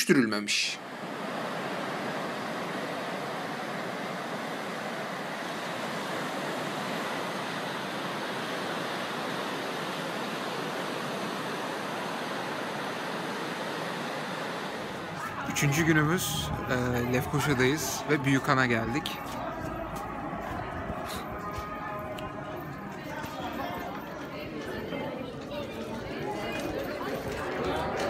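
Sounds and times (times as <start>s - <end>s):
sea waves breaking on beach: 0.8s - 21.4s.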